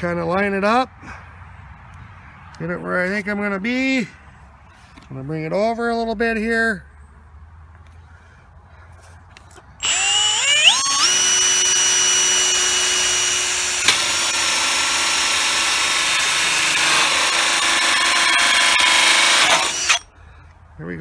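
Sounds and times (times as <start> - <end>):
drill with hole saw cutting: 9.8 - 20.1.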